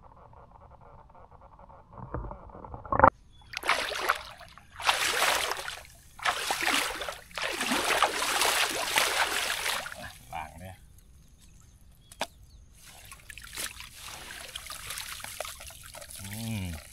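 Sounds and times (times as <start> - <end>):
hand splashing pond water: 3.5 - 10.2, 12.8 - 16.9.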